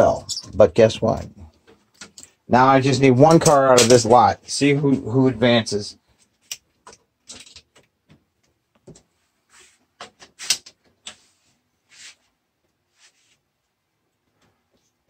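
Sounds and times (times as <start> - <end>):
toy cars clicking and clattering: 6.4 - 7.9.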